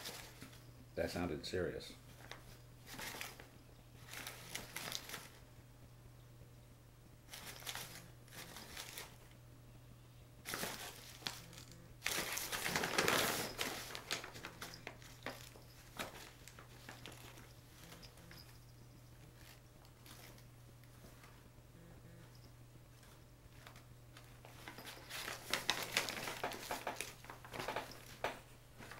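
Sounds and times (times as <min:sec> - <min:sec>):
paper bag crinkling and rustling: 0:00.0 - 0:00.6, 0:02.1 - 0:05.4, 0:07.3 - 0:09.3, 0:10.4 - 0:18.7, 0:19.3 - 0:21.4, 0:23.0 - 0:28.9
faint low hum: 0:00.0 - 0:28.9.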